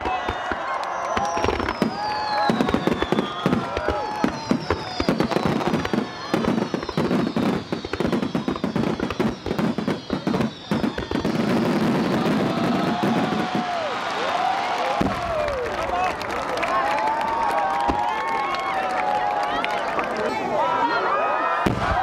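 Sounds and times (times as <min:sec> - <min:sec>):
high whistles gliding down: 0:00.1 - 0:15.7.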